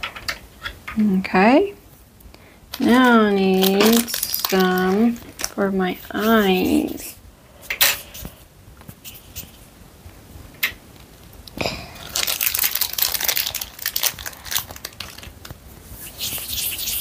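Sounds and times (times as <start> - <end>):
plastic wrapper crinkling: 2.7 - 6.5, 11.9 - 17.0.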